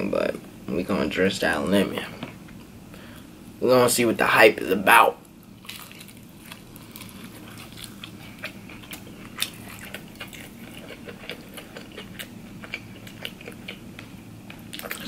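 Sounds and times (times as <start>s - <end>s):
chewing and crunching: 5.3s - 15.0s.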